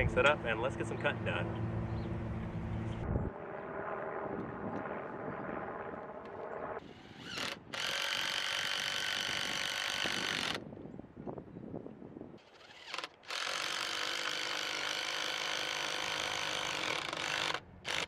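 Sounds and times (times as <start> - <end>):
cordless drill whirring: 6.8 - 10.6, 12.4 - 18.0.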